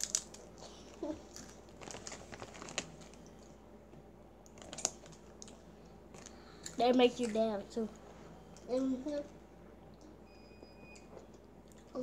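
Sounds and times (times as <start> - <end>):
chip bag crinkling: 0.0 - 3.2, 4.5 - 5.6.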